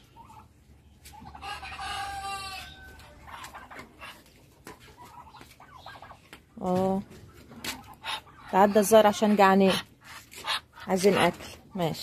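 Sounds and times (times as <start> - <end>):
chickens clucking: 0.0 - 12.0
rooster crowing: 1.6 - 3.1.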